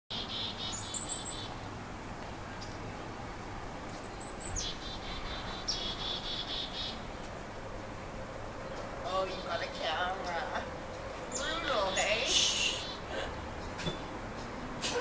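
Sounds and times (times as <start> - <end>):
thin high bird chirps: 4.0 - 7.0
buzzy grating bird call: 4.6 - 7.0, 11.3 - 13.1.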